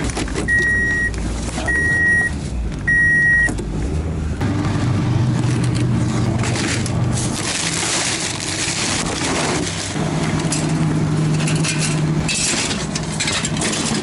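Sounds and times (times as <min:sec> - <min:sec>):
plastic bag crinkling: 0:07.2 - 0:10.0.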